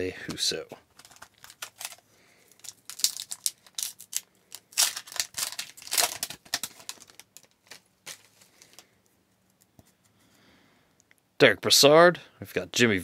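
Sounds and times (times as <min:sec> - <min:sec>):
cards clicking and rustling: 0:00.3 - 0:08.9
foil wrapper tearing: 0:00.9 - 0:08.8.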